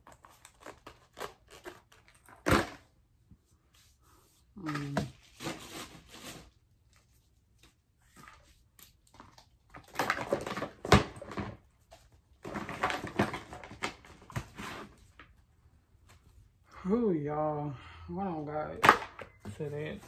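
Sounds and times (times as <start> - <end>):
rustling and clatter of belongings: 0.0 - 2.9, 4.6 - 16.4.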